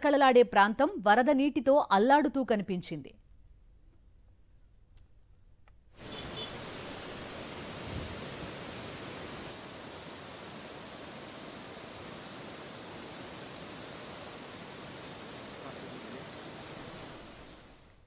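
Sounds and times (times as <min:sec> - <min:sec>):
river water rushing: 0:06.0 - 0:17.8.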